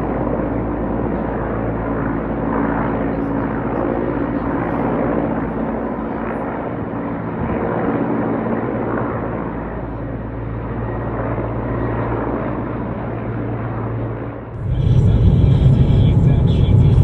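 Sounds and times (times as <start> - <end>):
helicopter engines and rotor drone: 0.0 - 17.0
rushing noise: 14.6 - 17.0.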